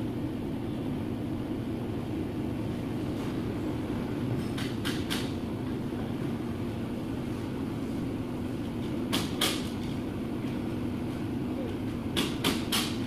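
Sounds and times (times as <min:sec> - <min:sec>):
low machine drone: 0:00.0 - 0:12.4.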